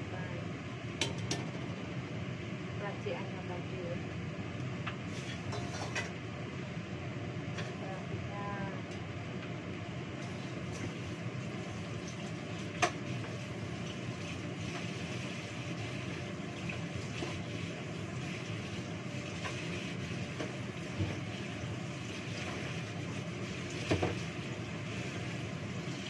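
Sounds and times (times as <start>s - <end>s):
hand washing in sink: 10.2s - 26.0s
tap water running into metal sink: 15.9s - 26.0s.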